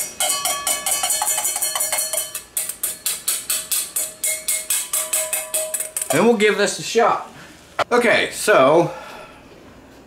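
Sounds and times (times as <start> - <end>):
metal spoon clinking on wok: 0.0 - 6.2.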